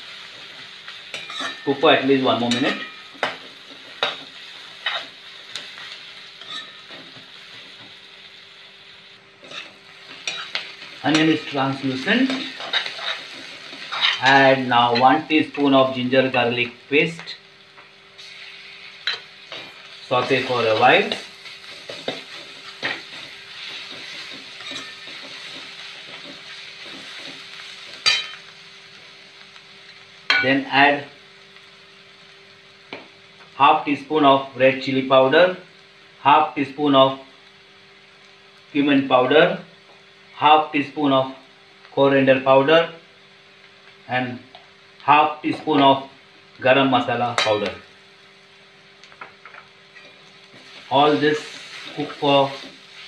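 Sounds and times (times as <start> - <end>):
onions sizzling in oil: 0.0 - 53.0
steel spoon scraping a pan: 1.1 - 1.7, 6.4 - 7.0, 9.4 - 11.4, 12.0 - 15.2, 18.2 - 28.4
steel spatula scraping pan: 21.9 - 25.6.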